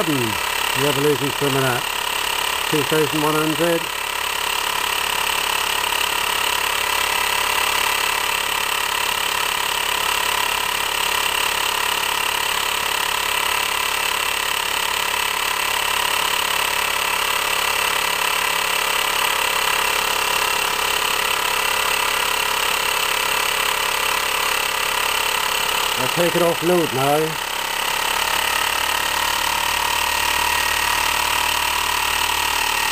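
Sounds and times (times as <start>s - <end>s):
stirling engine running: 0.0s - 4.0s, 25.7s - 32.9s.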